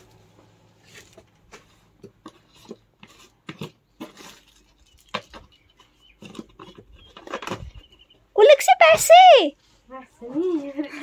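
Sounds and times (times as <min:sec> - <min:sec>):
plastic jars knocking and clicking: 0:02.0 - 0:07.8.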